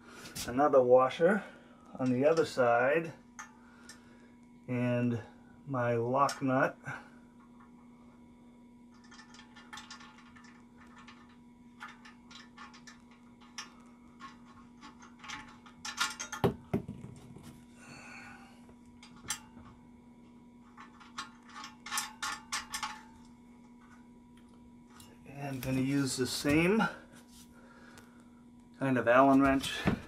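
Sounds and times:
small metal clicks and rattles: 0:08.9 - 0:16.4, 0:20.6 - 0:25.8.

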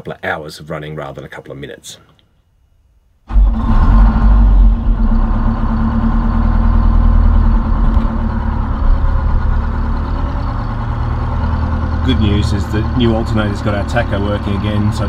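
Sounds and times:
diesel engine idling: 0:03.3 - 0:15.0.

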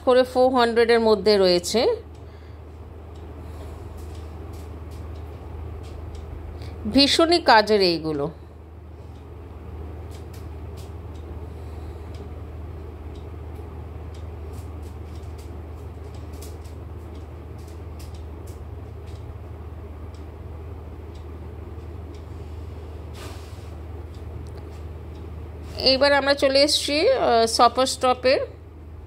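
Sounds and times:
shop ambience hum: 0:00.0 - 0:29.0
light clicks and ticks: 0:03.1 - 0:07.0, 0:09.0 - 0:11.4, 0:12.0 - 0:20.4
short hiss: 0:23.1 - 0:23.8.

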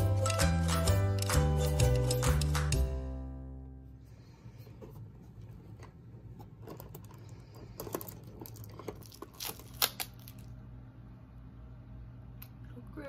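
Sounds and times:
cardboard tearing and crinkling: 0:08.0 - 0:10.5.

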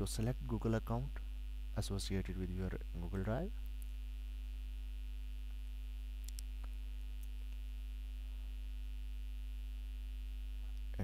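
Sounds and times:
electrical mains hum: 0:00.0 - 0:11.0
faint clicks: 0:06.2 - 0:07.6.

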